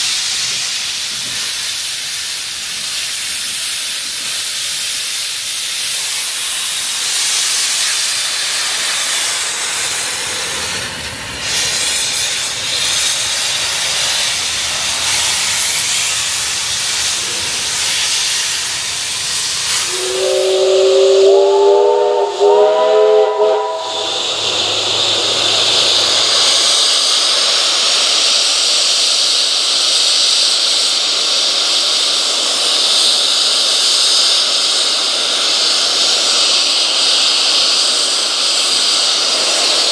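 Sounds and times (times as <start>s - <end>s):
steam hissing: 0.0s - 39.9s
steam whistle: 19.4s - 25.8s.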